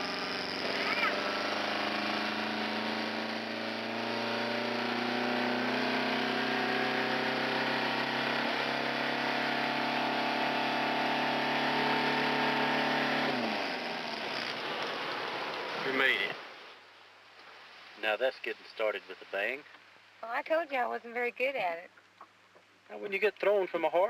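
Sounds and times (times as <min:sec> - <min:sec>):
motorboat engine running: 0:00.0 - 0:08.6.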